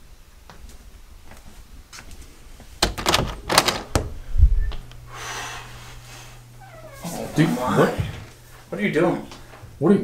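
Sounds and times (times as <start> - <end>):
sharp clattering door knocks: 2.8 - 4.1
dull low door thud: 2.8 - 4.2.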